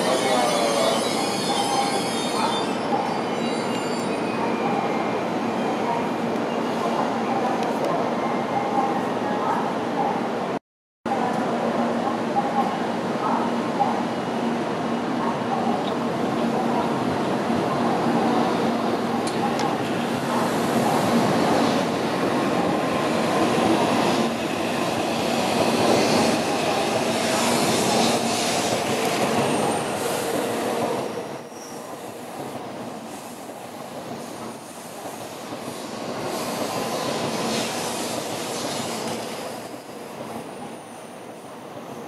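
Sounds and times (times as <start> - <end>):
train rolling past on rails: 11.2 - 42.0.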